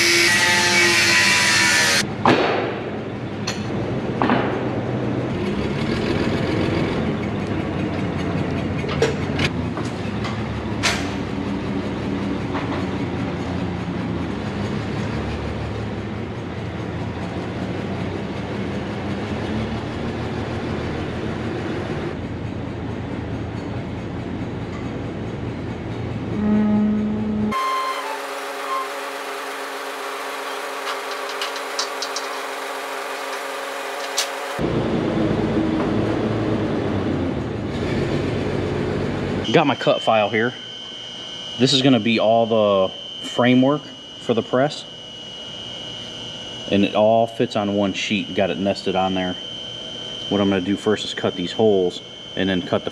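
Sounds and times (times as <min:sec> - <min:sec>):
angle grinder cutting steel: 0:00.0 - 0:02.0, 0:27.5 - 0:34.6
forklift engine running: 0:02.8 - 0:43.3.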